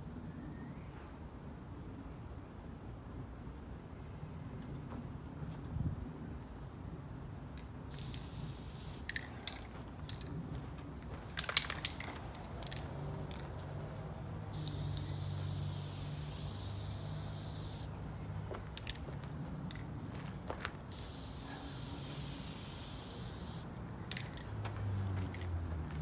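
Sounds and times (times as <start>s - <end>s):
spray paint can hissing: 7.9s - 9.6s, 14.5s - 17.9s, 20.9s - 24.4s.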